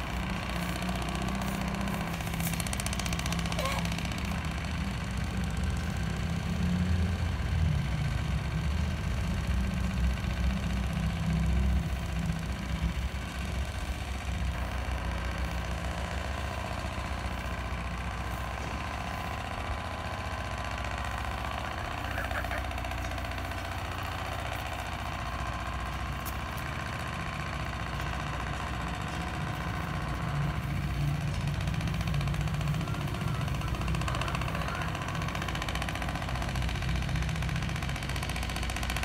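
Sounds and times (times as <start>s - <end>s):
engine idling: 0.0s - 39.0s.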